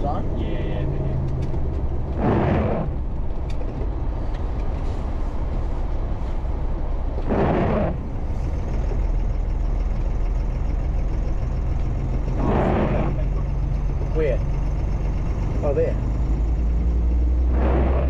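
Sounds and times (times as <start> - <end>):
truck diesel engine running: 0.0 - 18.0.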